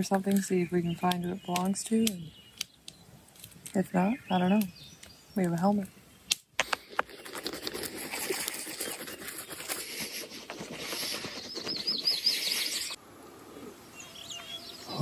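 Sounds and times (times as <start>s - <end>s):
rustling with crackles and clicks: 0.0s - 3.9s, 5.0s - 13.0s
bird chirping: 0.0s - 15.0s.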